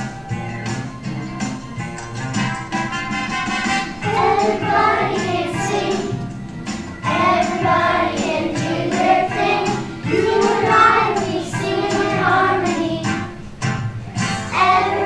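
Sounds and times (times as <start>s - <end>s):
backing music: 0.0s - 15.0s
children singing together: 3.9s - 13.5s, 14.4s - 15.0s.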